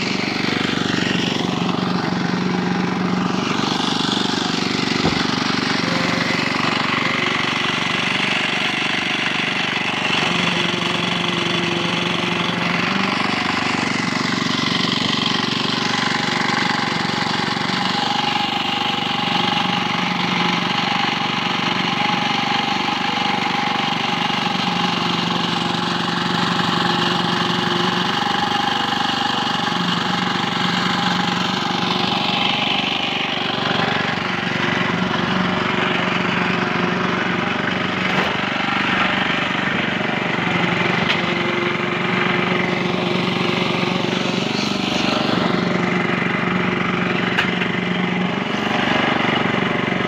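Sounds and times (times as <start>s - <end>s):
machine engine running: 0.0s - 50.0s.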